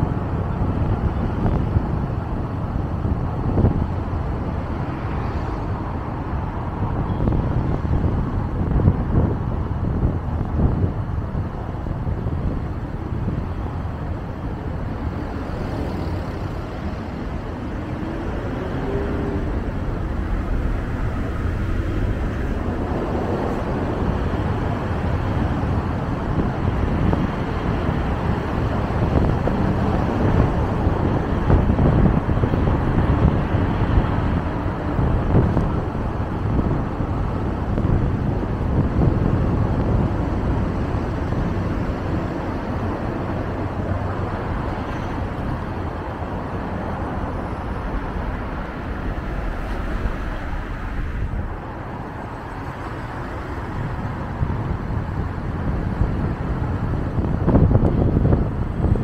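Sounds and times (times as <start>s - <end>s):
low engine hum: 0.0s - 59.0s
road and tyre noise: 0.0s - 59.0s.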